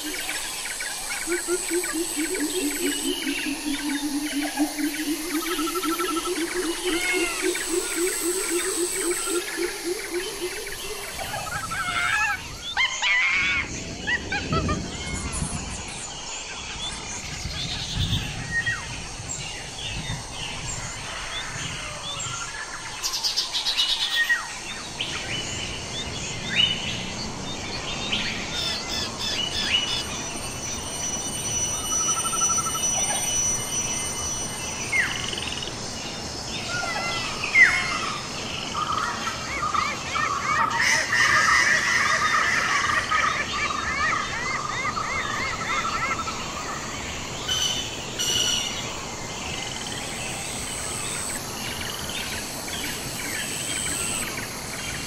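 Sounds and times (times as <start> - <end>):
low rapidly pulsed call: 0.0 - 12.4, 29.6 - 35.8
steady background hiss: 0.0 - 55.0
wild birds chirping and calling: 0.0 - 55.0.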